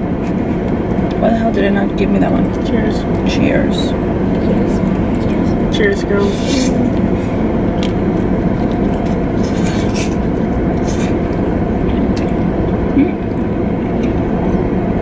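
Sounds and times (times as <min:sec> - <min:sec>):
car idling rumble: 0:00.0 - 0:15.0
slurping noodles: 0:06.2 - 0:07.5, 0:08.1 - 0:12.6.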